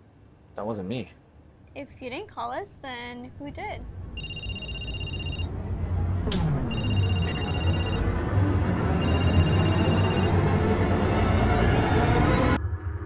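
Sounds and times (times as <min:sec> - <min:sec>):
electronic telephone ringing: 0:04.2 - 0:05.5, 0:06.6 - 0:08.1, 0:09.0 - 0:10.5.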